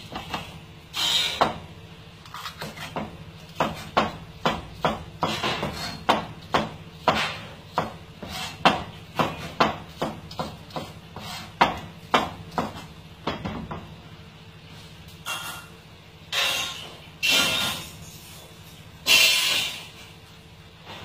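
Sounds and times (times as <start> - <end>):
knife chopping on cutting board: 0.0 - 13.9.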